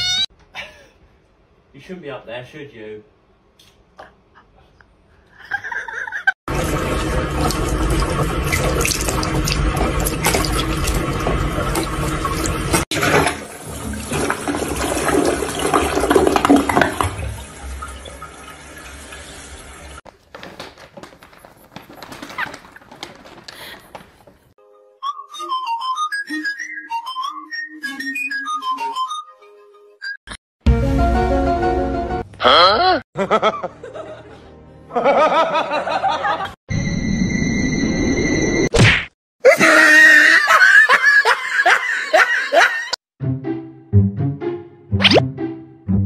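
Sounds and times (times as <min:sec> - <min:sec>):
toilet flushing: 0:06.5 - 0:20.0.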